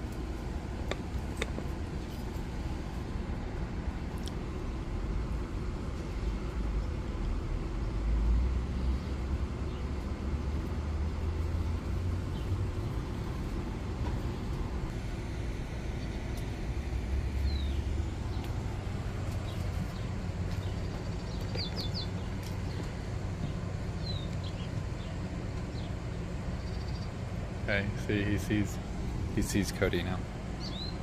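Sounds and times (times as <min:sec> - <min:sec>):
steady low rumble: 0:00.0 - 0:31.0.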